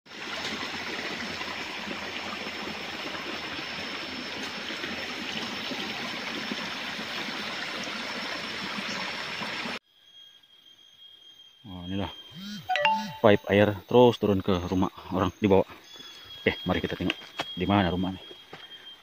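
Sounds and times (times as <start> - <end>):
thin high tone: 11.4 - 13.8.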